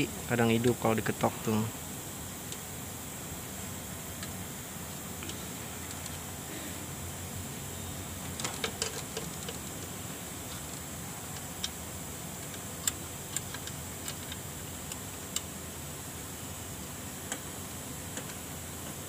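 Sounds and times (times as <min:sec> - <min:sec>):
steady hiss: 0:00.0 - 0:19.0.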